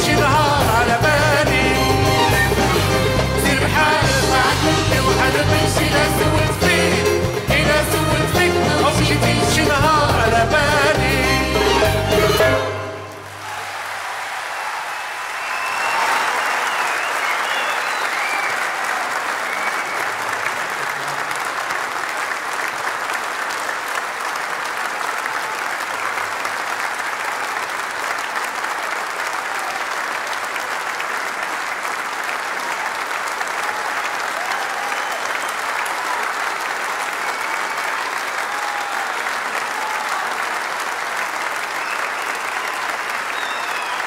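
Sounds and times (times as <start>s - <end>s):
audience applauding: 0.0s - 44.0s
short calls from audience: 12.9s - 21.9s, 24.8s - 44.0s.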